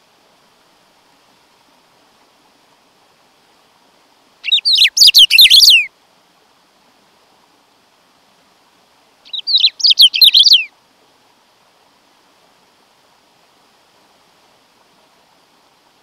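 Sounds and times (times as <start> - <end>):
bird singing whistled notes: 4.4 - 5.9, 9.2 - 10.7.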